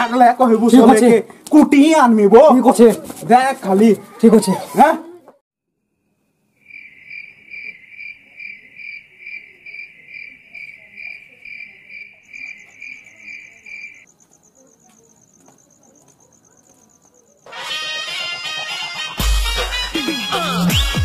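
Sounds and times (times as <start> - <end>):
cricket chirping: 5.9 - 17.5.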